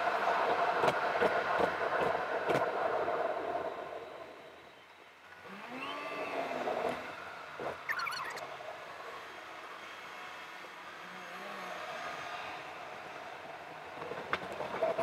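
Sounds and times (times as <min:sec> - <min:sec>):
rising-and-falling tones: 0:07.9 - 0:08.5.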